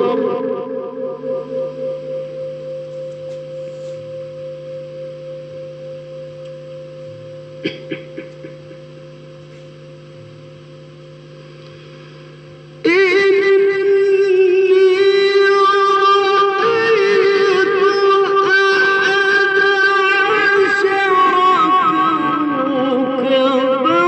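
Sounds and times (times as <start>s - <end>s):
person singing with vibrato: 0.0s - 4.7s, 12.8s - 24.0s
droning held tones: 0.0s - 24.0s.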